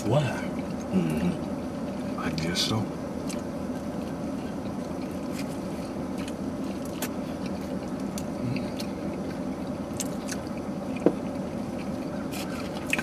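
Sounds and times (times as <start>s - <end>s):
low hum in car cabin: 0.0s - 13.0s
open-mouthed chewing: 3.2s - 13.0s.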